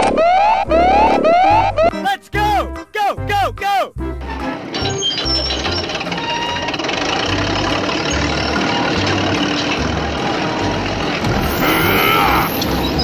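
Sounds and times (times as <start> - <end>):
rising and falling tone: 0.0 - 1.9
background music with bass line: 0.6 - 13.0
heavy vehicle engine running: 4.1 - 13.0.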